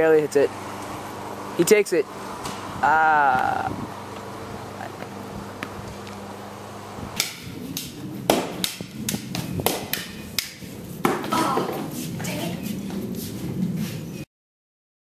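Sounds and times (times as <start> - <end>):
sharp knocks on hard surface: 8.3 - 11.8.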